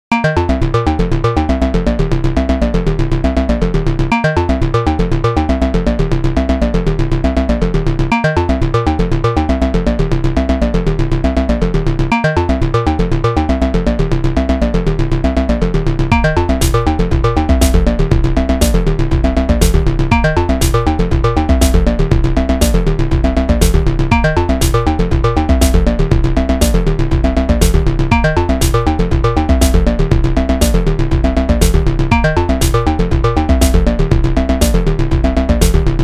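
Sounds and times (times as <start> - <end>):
electronic music with beat: 0.1 - 36.0.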